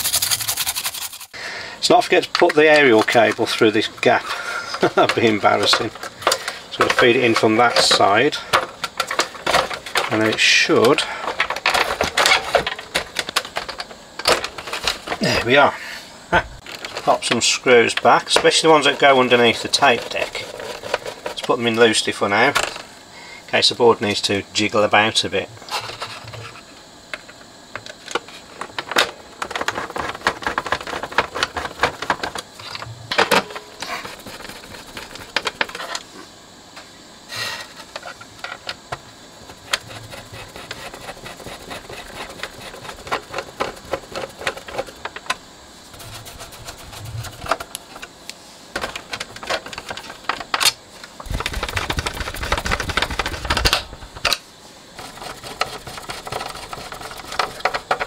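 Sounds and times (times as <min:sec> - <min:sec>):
screwdriver clicking and scraping: 0:00.0 - 0:01.4.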